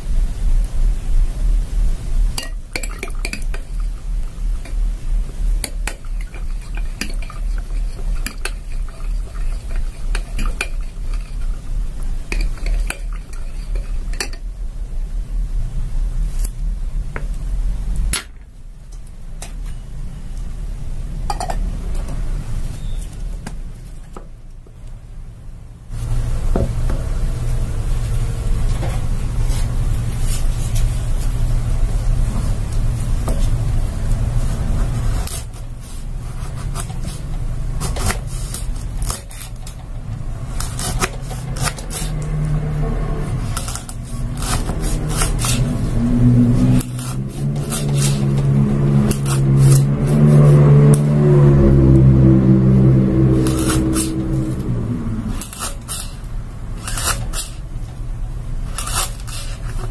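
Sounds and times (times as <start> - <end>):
low rumble: 41.9 - 55.6.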